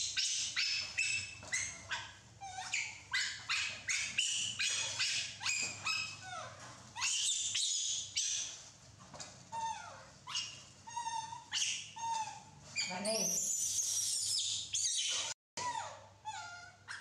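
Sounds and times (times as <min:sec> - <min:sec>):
baby monkeys squeaking: 0:00.0 - 0:08.7, 0:09.5 - 0:17.0.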